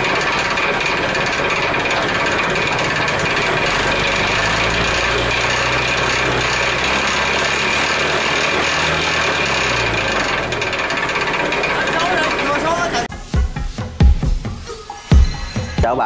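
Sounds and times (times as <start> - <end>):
farm machinery clatter and rattle: 0.0 - 13.1
low machinery hum: 0.0 - 13.1.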